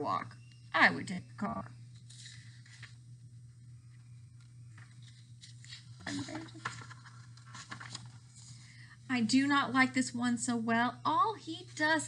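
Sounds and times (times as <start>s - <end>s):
book pages rustling: 1.9s - 3.0s, 3.9s - 8.6s
woman murmuring: 6.0s - 6.6s.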